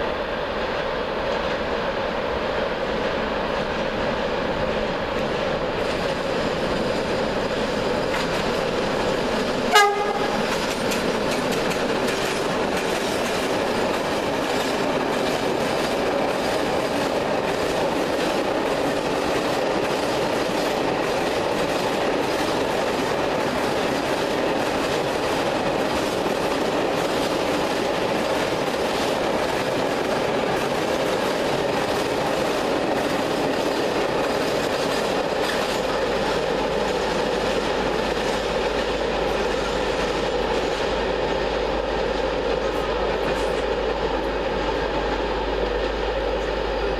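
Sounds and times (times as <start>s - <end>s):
freight train rolling: 0.0s - 46.9s
train horn blast: 9.7s - 10.5s
clickety-clack of wagon wheels: 9.8s - 37.6s.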